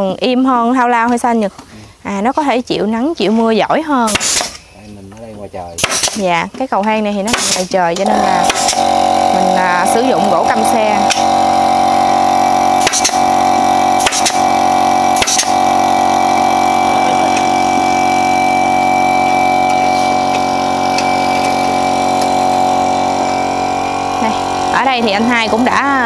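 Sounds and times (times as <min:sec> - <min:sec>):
sharp knocks: 0:05.8 - 0:06.2, 0:08.4 - 0:08.8
steady machine drone: 0:08.0 - 0:26.0.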